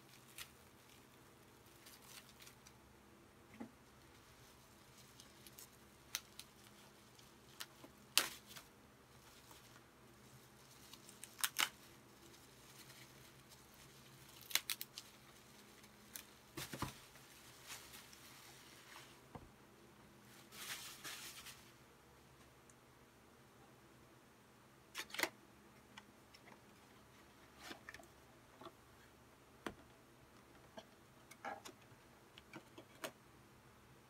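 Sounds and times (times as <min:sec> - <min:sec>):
bubble wrap crackling: 0:00.0 - 0:02.8, 0:04.0 - 0:19.2, 0:20.3 - 0:21.8.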